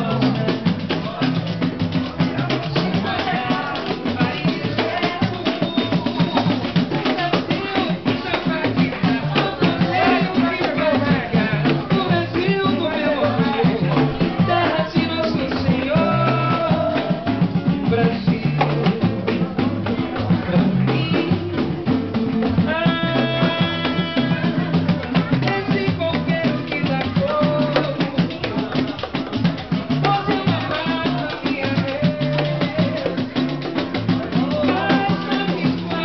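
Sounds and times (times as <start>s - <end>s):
acoustic guitar: 0.0s - 36.0s
bass line: 0.0s - 36.0s
hand drum and percussion: 0.0s - 36.0s
man singing: 0.0s - 36.0s.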